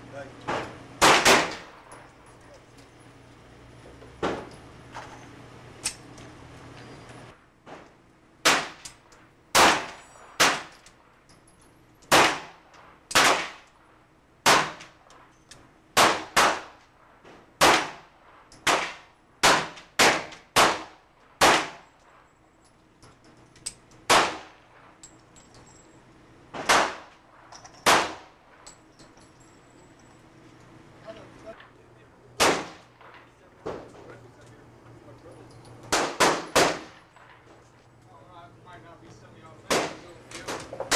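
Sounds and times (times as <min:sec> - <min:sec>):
handgun shots echoing: 0:00.5 - 0:01.8, 0:08.4 - 0:10.9, 0:12.0 - 0:13.8, 0:14.4 - 0:15.0, 0:16.0 - 0:16.8, 0:24.0 - 0:24.6, 0:26.6 - 0:27.2, 0:27.8 - 0:28.3, 0:32.4 - 0:33.3, 0:35.9 - 0:37.5, 0:39.7 - 0:40.9.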